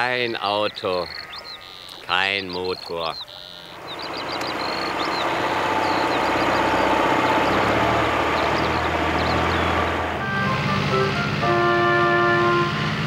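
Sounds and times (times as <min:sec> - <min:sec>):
vehicle engine rumbling: 0:00.0 - 0:13.0
music with long held notes: 0:03.8 - 0:13.0.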